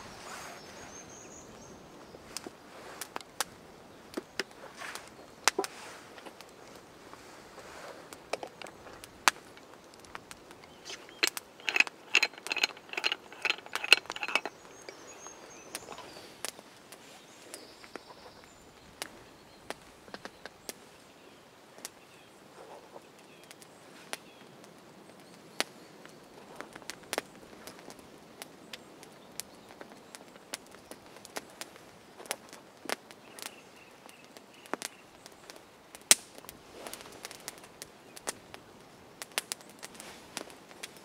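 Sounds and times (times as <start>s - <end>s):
wood fire crackling and popping: 2.2s - 20.9s, 22.6s - 41.0s
metal tins clicking and rattling: 10.7s - 15.0s.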